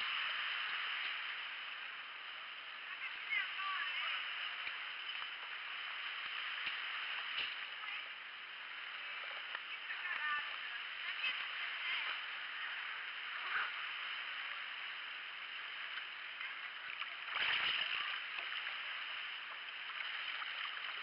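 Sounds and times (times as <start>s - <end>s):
water splashing along kayak hull: 0.0s - 21.0s
loud splash: 17.0s - 19.2s.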